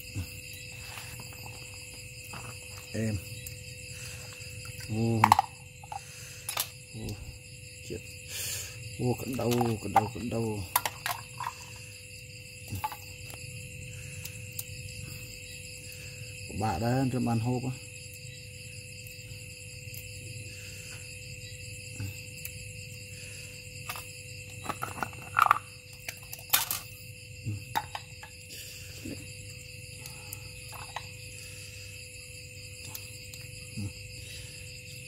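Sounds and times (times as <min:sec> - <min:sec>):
insects chorus: 0:00.0 - 0:35.0
snail shells and fork clicking: 0:04.7 - 0:07.2, 0:09.2 - 0:11.8, 0:30.0 - 0:31.2, 0:32.8 - 0:33.5.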